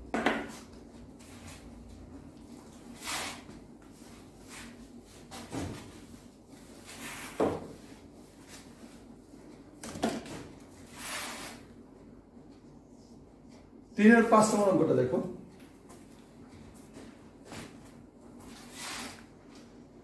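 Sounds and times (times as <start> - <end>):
duster wiping a whiteboard: 2.7 - 9.3, 10.7 - 11.7, 17.5 - 19.6.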